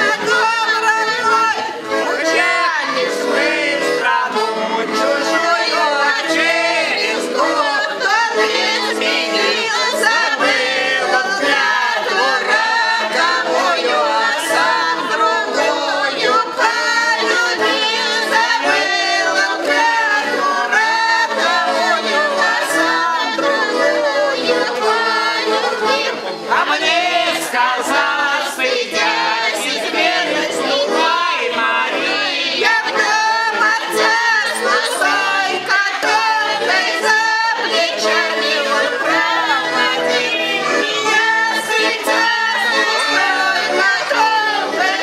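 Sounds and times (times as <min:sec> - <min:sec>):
button accordion playing: 0:00.0 - 0:45.0
group singing along: 0:00.0 - 0:45.0.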